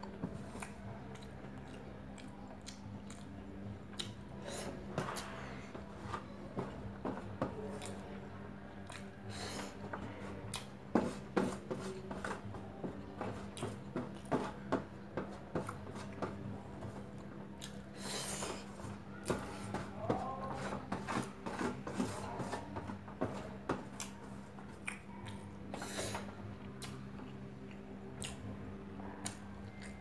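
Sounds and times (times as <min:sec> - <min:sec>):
chewing: 0:00.0 - 0:04.2, 0:07.7 - 0:08.1, 0:08.7 - 0:09.7, 0:17.1 - 0:18.6, 0:23.9 - 0:28.4.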